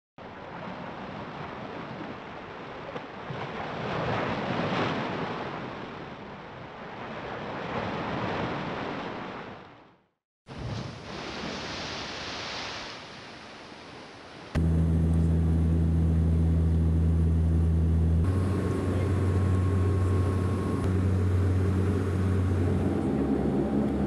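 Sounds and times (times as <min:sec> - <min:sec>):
rushing surf-like water: 0:00.2 - 0:09.7, 0:10.5 - 0:14.6.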